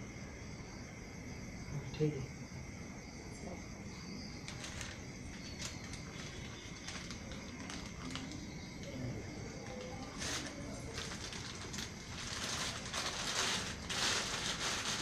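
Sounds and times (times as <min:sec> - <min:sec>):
plastic bag crinkling: 0:04.5 - 0:08.6, 0:09.6 - 0:15.0.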